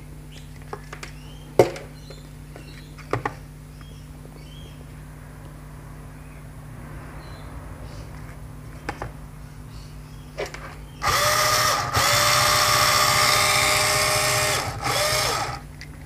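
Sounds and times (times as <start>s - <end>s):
cordless screwdriver whining: 11.0s - 15.6s.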